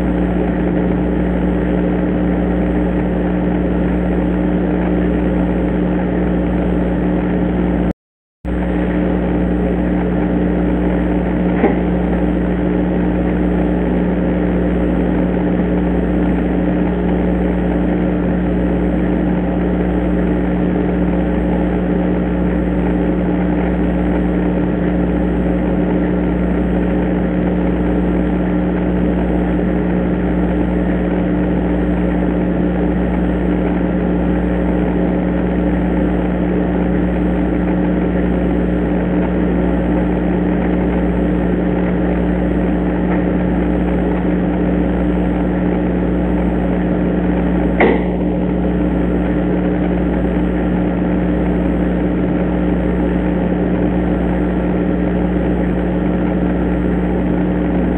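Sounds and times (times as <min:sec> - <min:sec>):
electrical hum and hiss: 0:00.0 - 0:07.9, 0:08.5 - 0:57.9.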